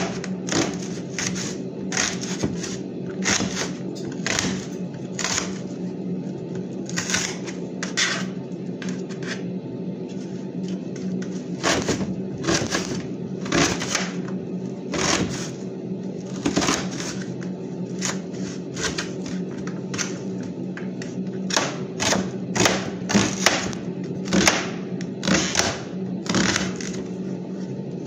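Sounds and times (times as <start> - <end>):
steady low hum: 0.0 - 28.0
knife slicing onion: 11.6 - 14.2.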